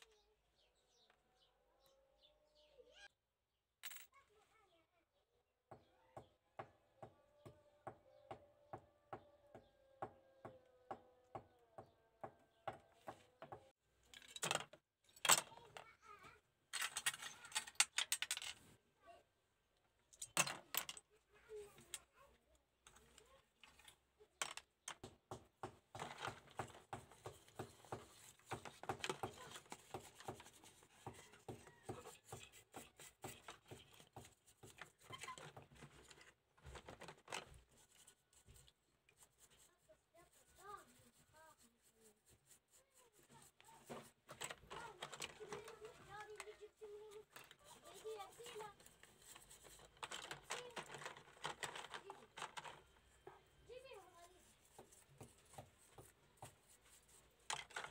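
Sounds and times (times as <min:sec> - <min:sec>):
small plastic parts clattering: 0:14.1 - 0:15.8, 0:16.7 - 0:18.8, 0:20.1 - 0:21.1, 0:22.8 - 0:25.0, 0:34.8 - 0:38.1, 0:44.2 - 0:53.0, 0:57.4 - 0:57.9
brush scrubbing in soapy water: 0:37.8 - 0:44.2.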